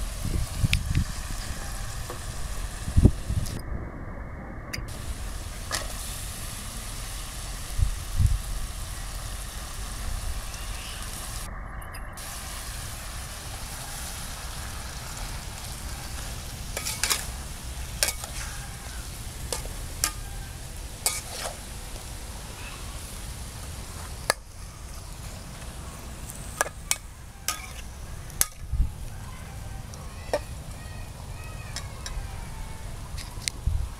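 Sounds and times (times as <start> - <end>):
food sizzling in a wok: 0.0 - 3.5, 4.9 - 11.5, 12.2 - 30.8
metal spatula scraping wok: 15.6 - 21.8, 26.5 - 28.6.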